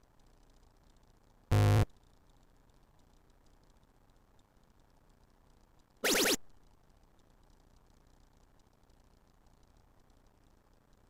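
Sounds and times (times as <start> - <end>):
electronic rising chirps: 6.0 - 6.4.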